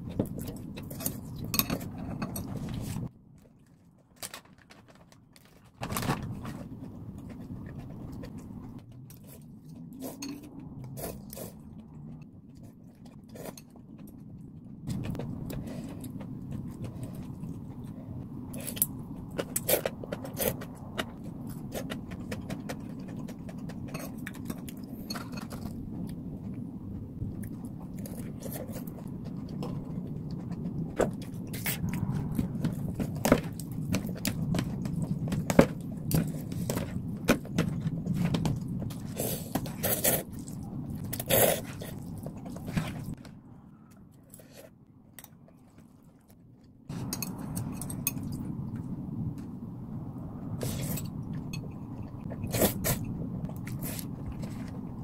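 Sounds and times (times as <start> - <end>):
chewing and crunching: 0.0 - 49.0, 50.5 - 55.0
steady low hum: 6.2 - 55.0
slurping noodles: 39.0 - 43.2.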